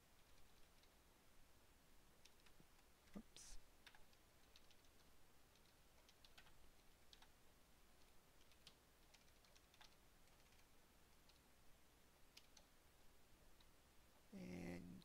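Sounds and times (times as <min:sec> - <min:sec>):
typing on computer keyboard: 0:00.2 - 0:01.0, 0:02.2 - 0:02.9, 0:03.8 - 0:07.4, 0:08.0 - 0:11.4, 0:12.3 - 0:12.7.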